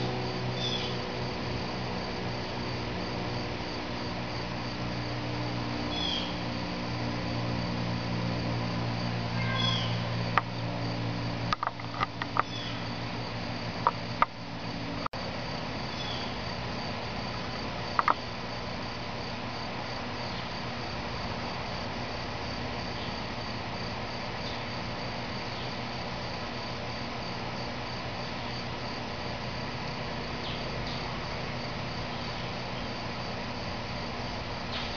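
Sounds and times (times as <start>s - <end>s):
insect trill: 0.0s - 34.9s
outdoor background hiss: 0.0s - 34.9s.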